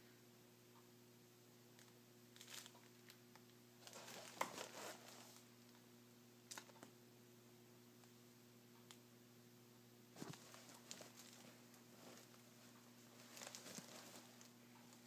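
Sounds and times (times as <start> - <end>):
fabric rustling: 3.8 - 5.5, 10.2 - 15.0.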